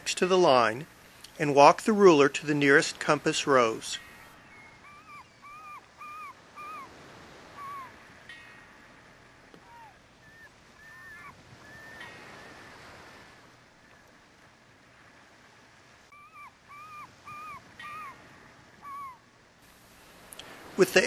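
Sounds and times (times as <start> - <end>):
low hiss: 0.0 - 10.8, 11.4 - 21.0
high-pitched animal calls: 4.1 - 8.0, 9.6 - 12.7, 16.1 - 19.2.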